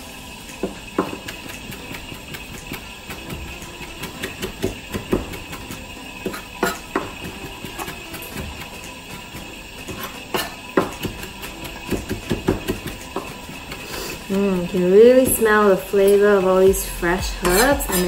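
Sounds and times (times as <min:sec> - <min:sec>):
knife chopping on cutting board: 0:09.9 - 0:13.8.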